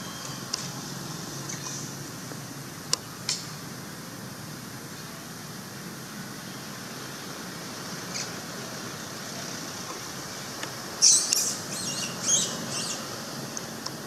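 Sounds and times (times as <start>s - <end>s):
monkey shrill squeals: 11.0s - 13.0s.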